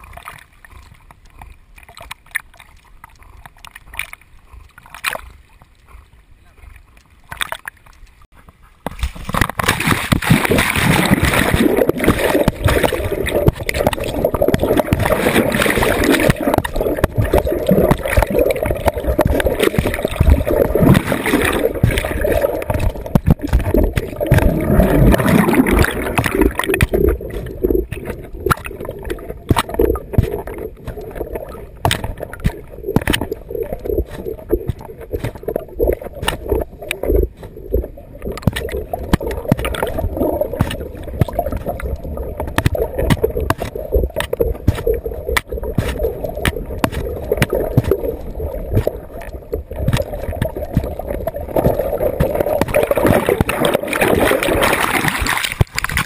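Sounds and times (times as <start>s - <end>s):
muffled underwater water noise: 0.0s - 56.0s.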